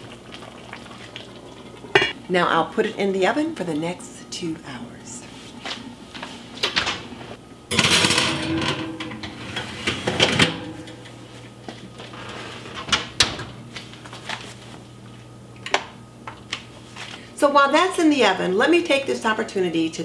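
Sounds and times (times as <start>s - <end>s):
pot clanking on metal oven rack: 7.7s - 11.1s
oven door opening: 7.7s - 11.2s, 12.1s - 13.6s
oven door shutting: 7.7s - 11.2s, 12.1s - 13.6s.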